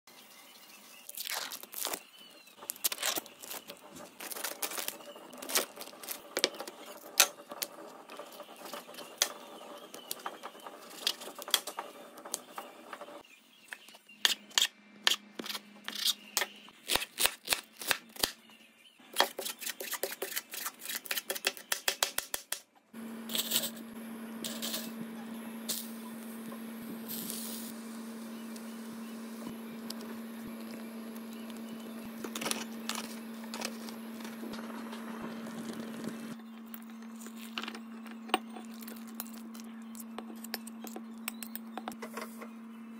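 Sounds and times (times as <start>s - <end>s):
plastic wrapping crinkling: 1.0s - 6.6s
steady low hum: 23.0s - 42.9s.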